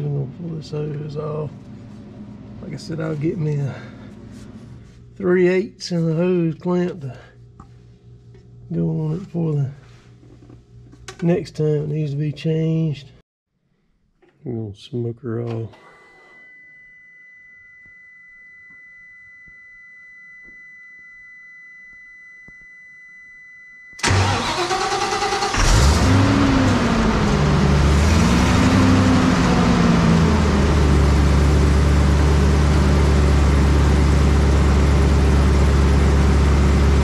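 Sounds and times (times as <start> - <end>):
faint high whine: 15.4 - 24.2
engine revving and idling: 24.0 - 37.0.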